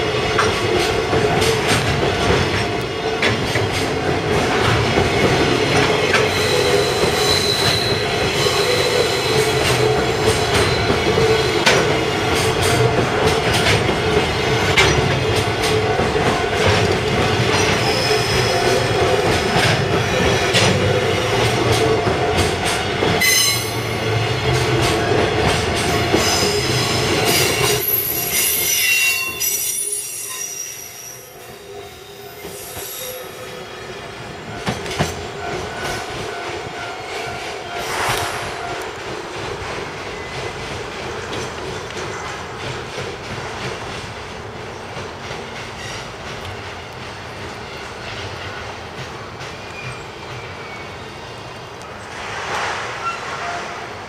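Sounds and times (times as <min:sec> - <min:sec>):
train wheels clattering over rail joints: 0:00.2 - 0:08.5, 0:09.4 - 0:23.5, 0:38.6 - 0:50.6
high wheel squeal: 0:06.3 - 0:09.6, 0:17.6 - 0:18.9, 0:27.4 - 0:33.8.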